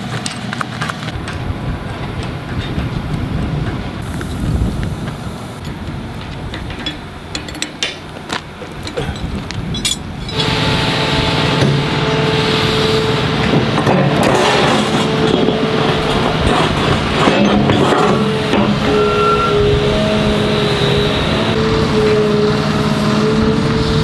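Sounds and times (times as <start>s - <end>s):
excavator engine and hydraulics: 0.0s - 24.0s
steady whine: 0.0s - 24.0s
low rumble: 1.2s - 12.2s
metallic clicks and knocks: 5.6s - 10.4s.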